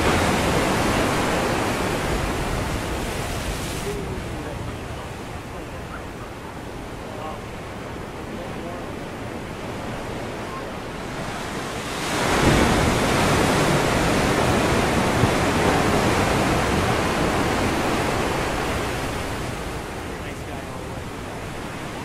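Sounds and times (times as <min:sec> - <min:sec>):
wave breaking on rocky shore: 0:00.0 - 0:06.7, 0:09.9 - 0:20.1.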